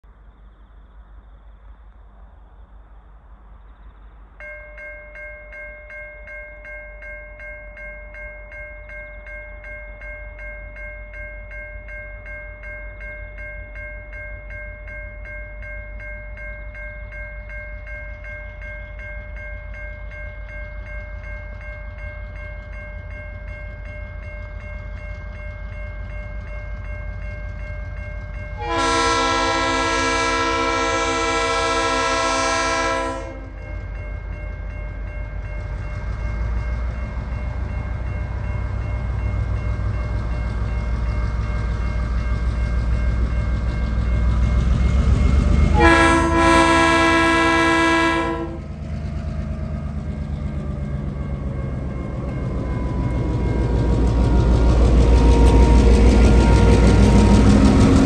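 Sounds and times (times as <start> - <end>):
level crossing warning bell: 4.4 - 58.0
locomotive rumble: 16.4 - 58.0
locomotive horn blasting: 28.6 - 33.6, 45.7 - 48.7.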